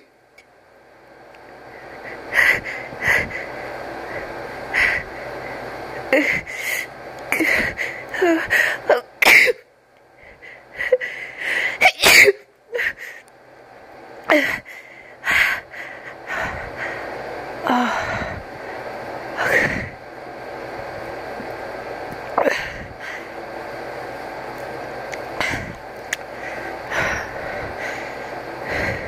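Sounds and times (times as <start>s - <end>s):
person sneezing: 11.8s - 12.4s.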